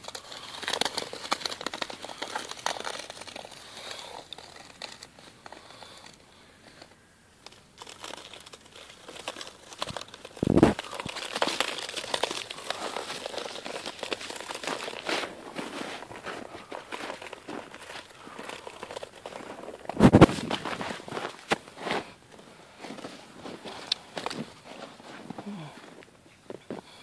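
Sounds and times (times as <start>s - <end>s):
snow crunching: 7.6s - 27.0s.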